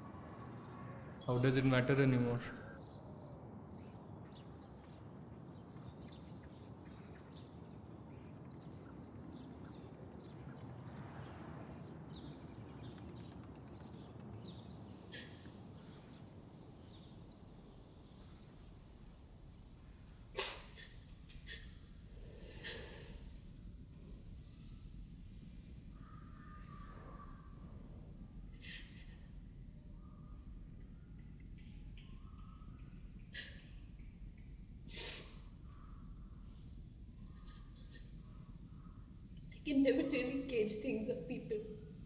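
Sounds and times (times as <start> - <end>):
faint bird chirps: 0.0 - 42.0
steady low hum: 13.4 - 42.0.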